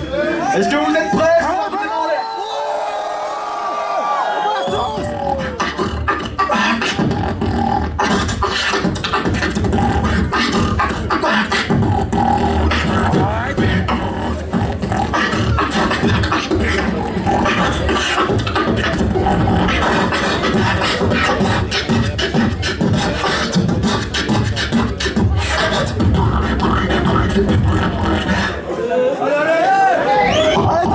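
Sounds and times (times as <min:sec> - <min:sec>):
person beatboxing into a microphone: 0:04.7 - 0:28.8, 0:30.2 - 0:30.9.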